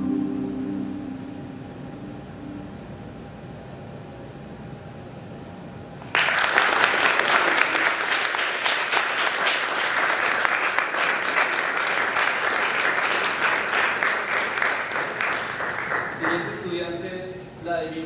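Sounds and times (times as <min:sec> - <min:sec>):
audience applause: 0:06.1 - 0:16.7.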